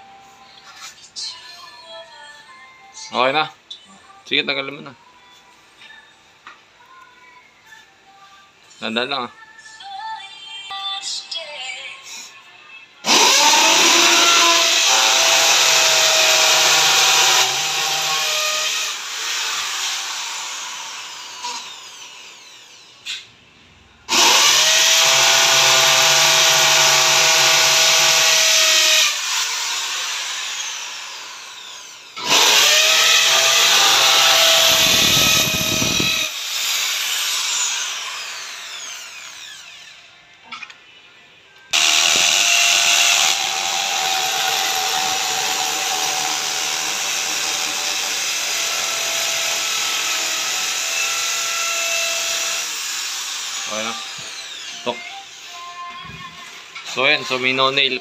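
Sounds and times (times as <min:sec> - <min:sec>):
electric drill boring into wall: 0:13.0 - 0:22.9, 0:24.1 - 0:40.0, 0:41.7 - 0:55.4.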